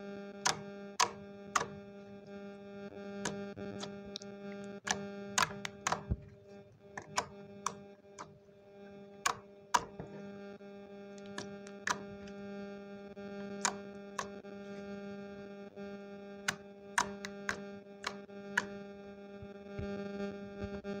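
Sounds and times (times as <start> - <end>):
slime popping and clicking: 3.2 - 8.3.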